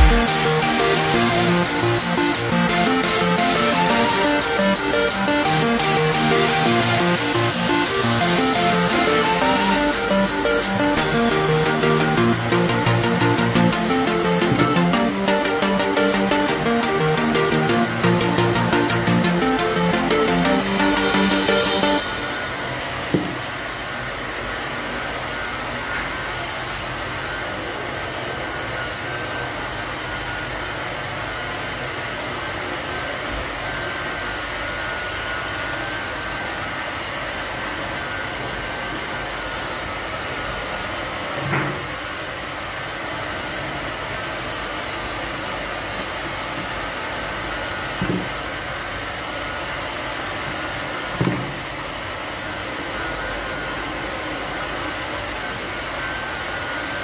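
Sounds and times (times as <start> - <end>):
blower whirring: 0.0 - 23.8.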